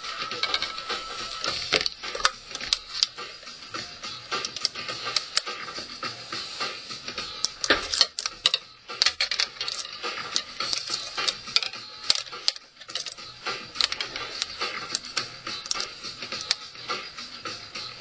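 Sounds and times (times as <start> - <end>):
metal wire handling clicks and scrapes: 0.3 - 3.3, 4.3 - 5.8, 7.3 - 16.8.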